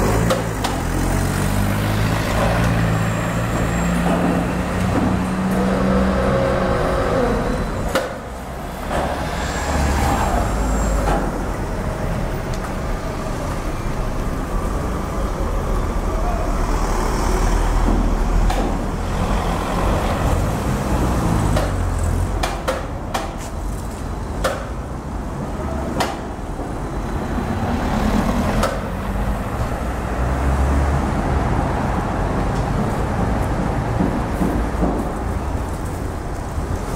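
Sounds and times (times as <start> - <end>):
rumble of engines and traffic: 0.0 - 36.9
sharp knocks and bangs: 3.9 - 5.7, 17.7 - 19.0, 21.4 - 23.4, 32.7 - 35.3.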